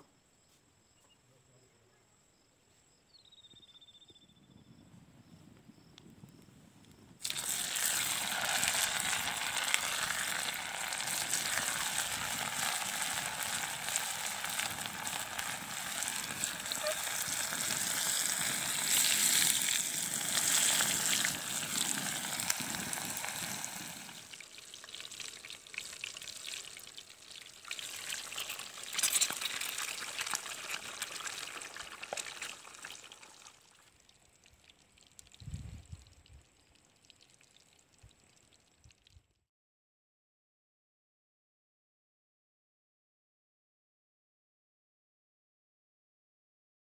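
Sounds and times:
patty sizzling in hot oil: 0:07.2 - 0:35.4.

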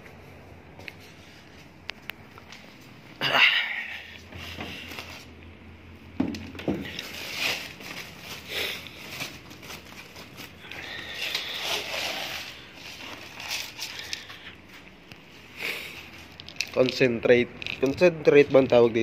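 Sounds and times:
plastic sack rustling and crinkling: 0:06.5 - 0:14.8.

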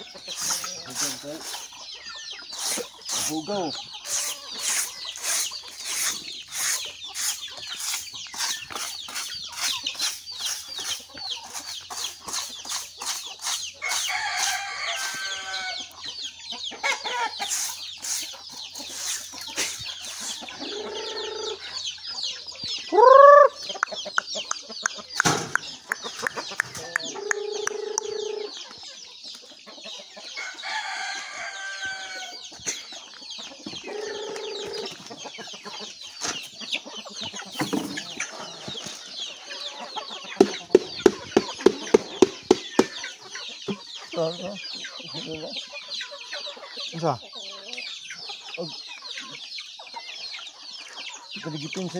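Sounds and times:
chicks peeping: 0:00.0 - 0:51.9
hens clucking: 0:00.0 - 0:51.9
wooden plank scraping dirt: 0:02.5 - 0:15.7, 0:17.0 - 0:20.8, 0:37.4 - 0:39.1, 0:40.3 - 0:43.1
loud rising and falling chicken call: 0:13.8 - 0:15.9, 0:20.2 - 0:21.6, 0:22.9 - 0:23.6, 0:26.8 - 0:28.5, 0:30.4 - 0:32.4.

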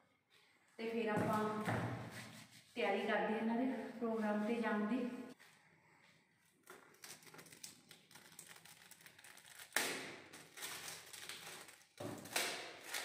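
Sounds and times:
packaging rustling: 0:06.7 - 0:13.0.

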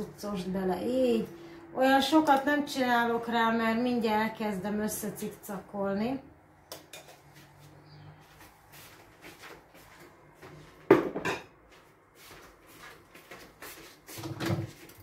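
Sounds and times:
dishes clattering: 0:10.9 - 0:11.6.

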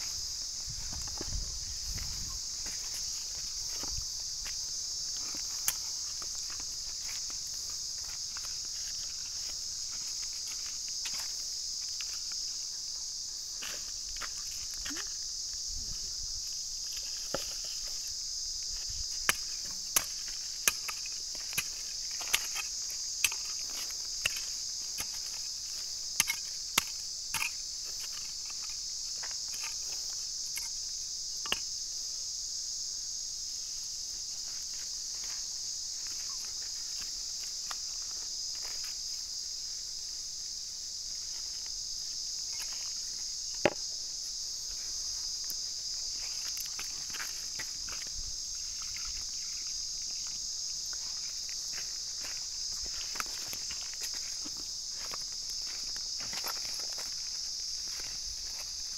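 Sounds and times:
high-pitched insect drone: 0:00.0 - 0:58.9.

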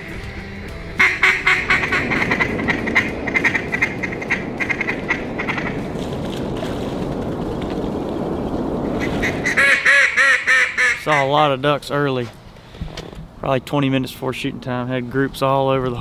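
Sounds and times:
low rushing noise: 0:00.0 - 0:16.0
ducks quacking: 0:00.8 - 0:05.8, 0:09.0 - 0:11.5.

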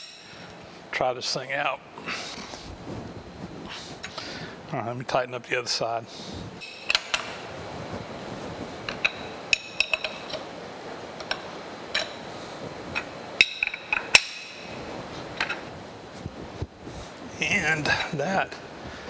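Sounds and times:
steady background noise: 0:00.0 - 0:19.0
wrench clinking on metal bolt: 0:08.9 - 0:10.4.

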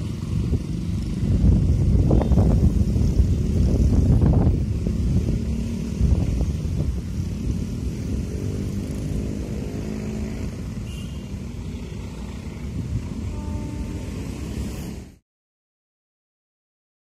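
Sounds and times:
train rumble: 0:12.0 - 0:15.2.

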